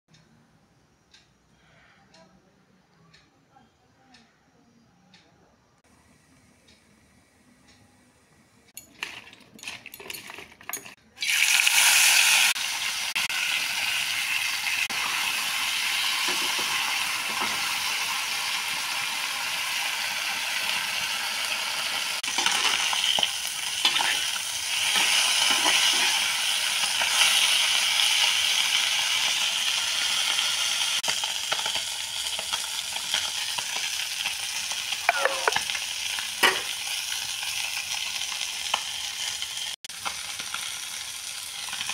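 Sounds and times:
fish sizzling in hot oil: 0:11.2 - 0:41.9.

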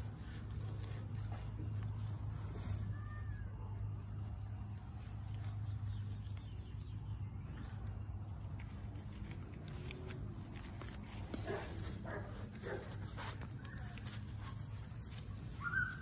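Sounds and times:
puppy whining: 0:15.5 - 0:16.0.

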